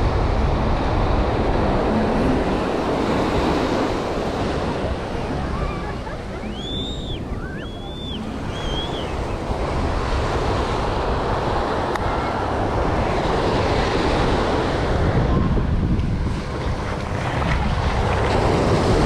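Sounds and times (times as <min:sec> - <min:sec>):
ocean surf breaking: 0:00.0 - 0:19.0
wind on microphone: 0:00.0 - 0:19.0
short high calls: 0:06.4 - 0:09.2.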